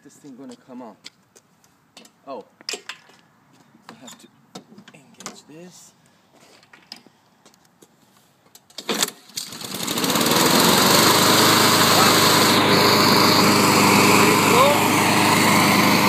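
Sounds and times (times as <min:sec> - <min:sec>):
lawn mower engine running: 0:08.8 - 0:16.0.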